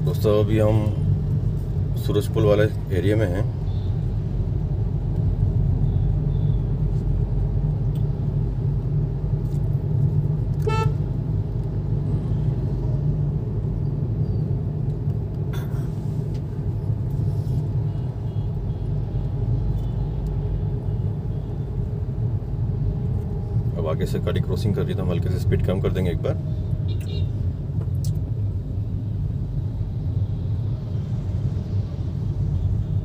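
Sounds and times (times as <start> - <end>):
road and engine rumble in car: 0.0 - 33.0
vehicle horn toot: 10.6 - 11.0, 26.9 - 27.3.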